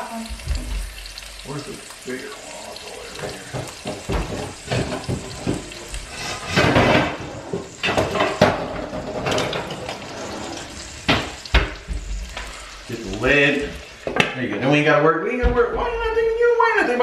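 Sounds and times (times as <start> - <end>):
oil sizzling in frying pan: 0.0 - 17.0
pots and lids clattering: 3.1 - 14.8.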